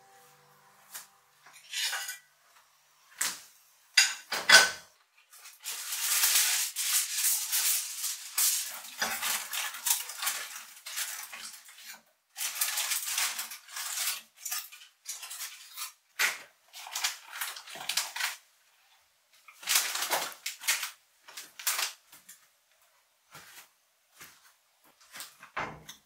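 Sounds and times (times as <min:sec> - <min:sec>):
utensils clattering on dishes: 0:01.5 - 0:02.3, 0:04.0 - 0:16.0.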